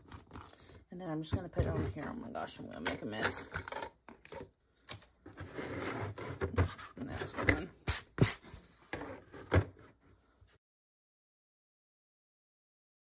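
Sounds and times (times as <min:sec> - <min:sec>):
canvas panel scraping on table: 0:05.3 - 0:09.9.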